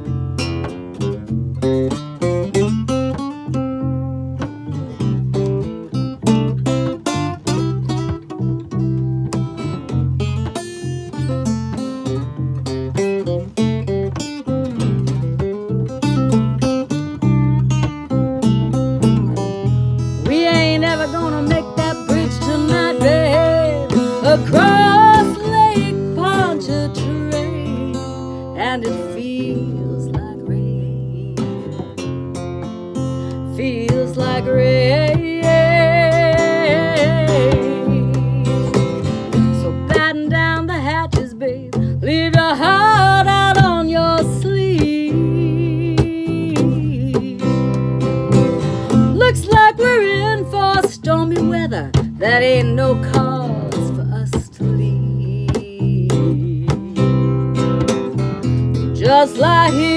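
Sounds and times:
acoustic guitar lead: 0.0s - 59.9s
bass guitar: 0.0s - 59.9s
person singing: 20.2s - 31.7s, 33.4s - 47.8s, 49.1s - 57.4s, 59.0s - 59.9s.

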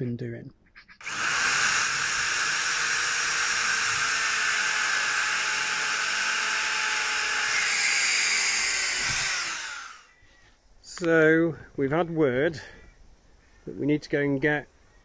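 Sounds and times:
electric drill boring: 1.0s - 10.1s.

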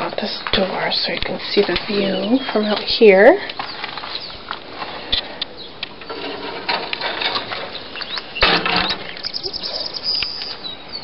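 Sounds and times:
rustle: 0.0s - 11.0s
footsteps brushing through grass: 0.4s - 5.0s
swallows twittering and chirping: 1.9s - 2.9s, 3.5s - 4.5s, 5.4s - 5.8s, 7.4s - 11.0s.

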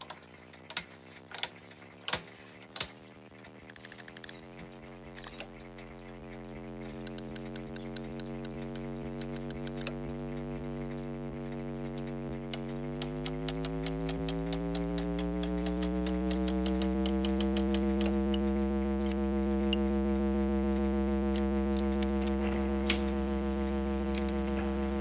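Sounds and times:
amplifier hum rising in pitch: 4.4s - 25.0s
rapid ticking: 6.0s - 24.6s.

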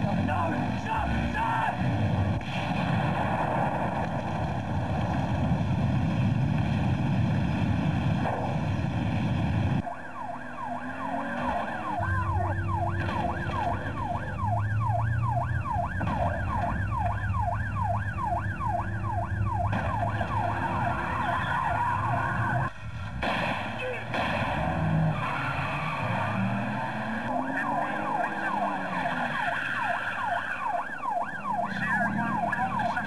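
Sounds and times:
car explosion roar: 1.8s - 9.8s, 15.8s - 16.8s, 23.0s - 25.2s
police siren: 9.8s - 22.8s, 23.8s - 33.0s.

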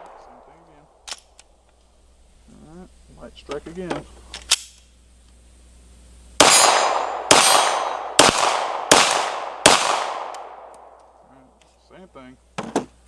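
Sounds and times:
pistol shots echoing: 6.4s - 11.0s.

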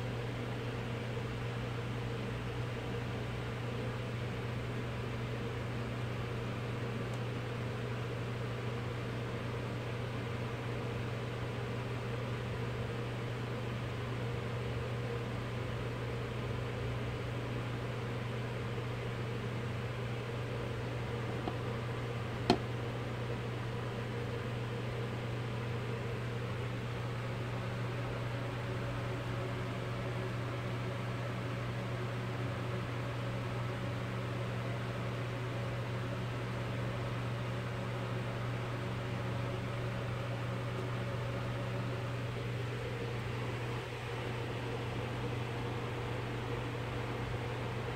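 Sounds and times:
low machine hum: 0.0s - 47.9s.

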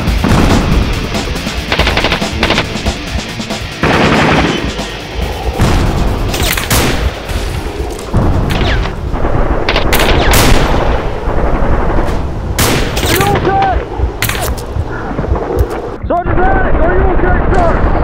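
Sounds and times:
rifle shots and bursts: 1.7s - 2.8s, 3.8s - 4.7s, 8.4s - 13.6s
heavy booming impacts: 3.8s - 16.0s.

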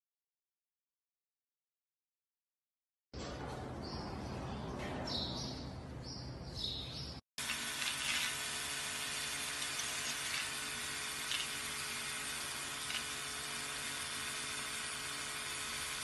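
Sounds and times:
electric toothbrush buzzing: 7.4s - 16.0s.

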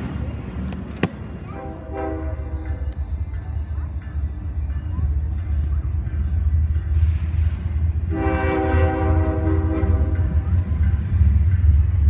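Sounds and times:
train horn blast: 1.6s - 3.0s, 8.0s - 10.4s.

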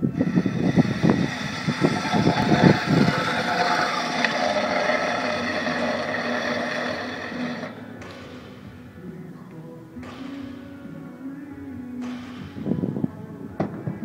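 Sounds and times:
metal sled skids scraping concrete: 0.0s - 7.9s.

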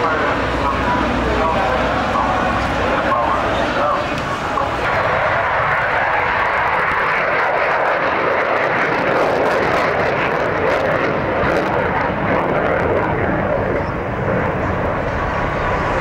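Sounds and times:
fighter jet engine rushing: 0.0s - 16.0s.

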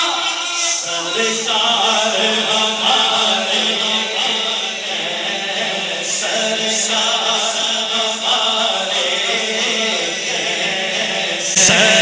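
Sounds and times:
men's voices chanting drone: 0.0s - 12.0s.

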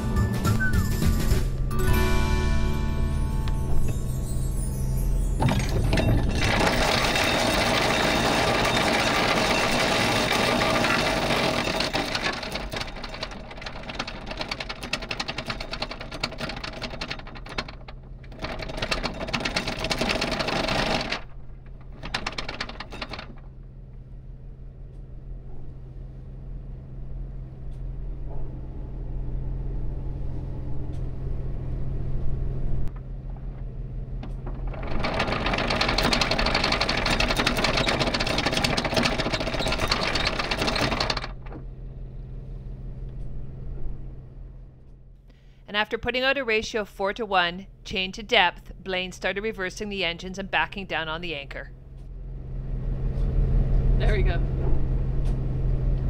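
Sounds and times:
anchor chain rattling: 5.4s - 23.6s, 34.3s - 41.6s.

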